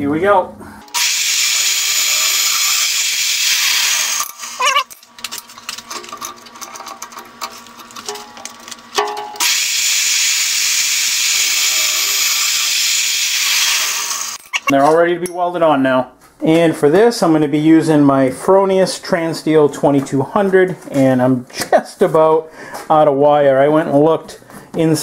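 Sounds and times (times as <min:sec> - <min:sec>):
drill boring through steel: 0:00.8 - 0:05.0, 0:09.4 - 0:14.7
clicks and clatter: 0:04.2 - 0:09.3.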